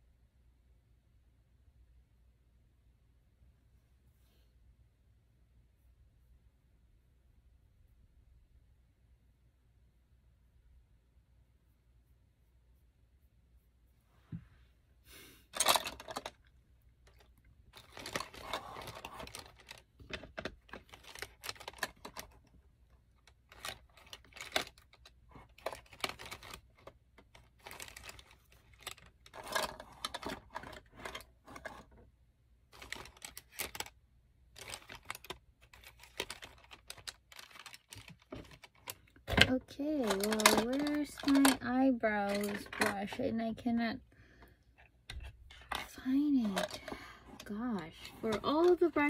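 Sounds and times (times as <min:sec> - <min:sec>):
makeup brushes clicking and clattering: 0:15.6 - 0:31.9, 0:32.7 - 0:33.9, 0:34.6 - 0:43.3, 0:45.1 - 0:49.0.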